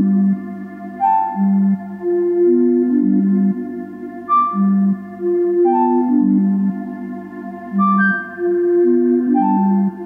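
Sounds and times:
ambient synthesizer music: 0:00.0 - 0:10.0
steady low drone: 0:00.0 - 0:10.0.

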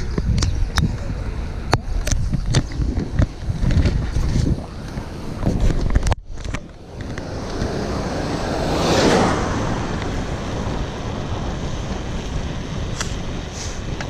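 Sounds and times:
wind rushing over microphone: 0:00.0 - 0:14.0.

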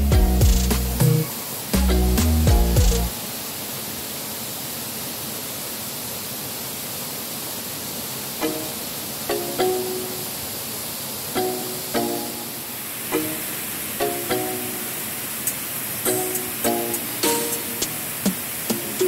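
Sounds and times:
plucked string music: 0:00.0 - 0:03.1, 0:11.4 - 0:15.0
waterfall pouring into pool: 0:00.3 - 0:19.0.

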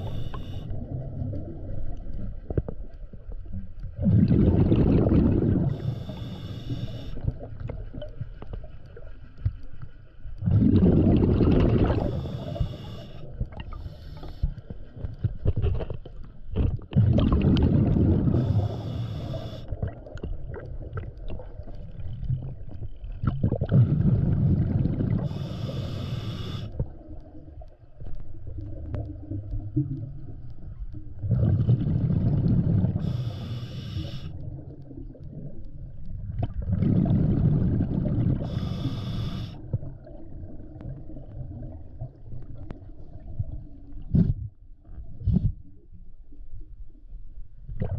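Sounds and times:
regulator inhale hiss: 0:00.0 - 0:00.7, 0:05.7 - 0:07.2, 0:12.0 - 0:14.7, 0:18.3 - 0:19.8, 0:25.2 - 0:26.8, 0:32.9 - 0:34.4, 0:38.4 - 0:39.6
diver exhaling bubbles: 0:04.0 - 0:05.9, 0:10.4 - 0:12.7, 0:16.9 - 0:20.1, 0:23.2 - 0:25.4, 0:31.2 - 0:33.4, 0:36.4 - 0:40.5.

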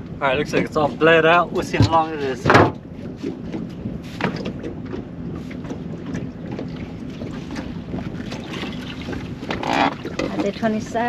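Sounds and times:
boat motor humming: 0:00.0 - 0:11.0
wind on microphone: 0:01.5 - 0:11.0
light knocks on boat: 0:01.7 - 0:10.6.

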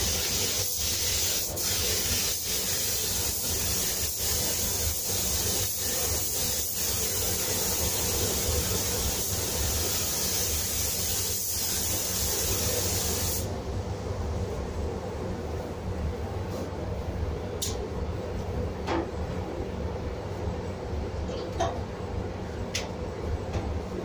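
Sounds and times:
spray gun hissing: 0:00.0 - 0:13.5
steady low hum: 0:13.4 - 0:24.0.

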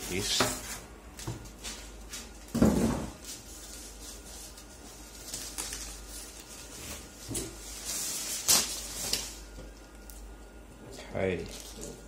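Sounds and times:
plastic sleeve rustling and crinkling: 0:03.3 - 0:09.4.

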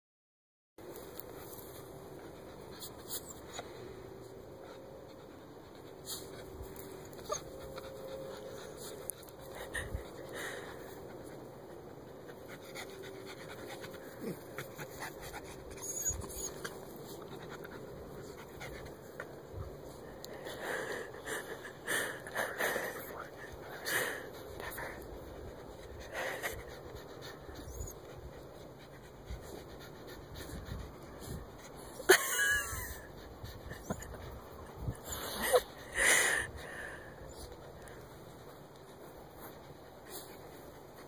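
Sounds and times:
dog panting: 0:01.3 - 0:41.0
paws scratching dirt: 0:05.8 - 0:32.0.

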